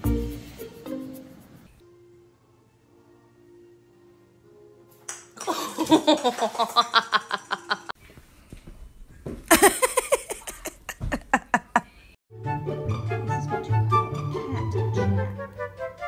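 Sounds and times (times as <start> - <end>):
laughter in quick bursts: 5.4 - 8.0, 9.5 - 12.0.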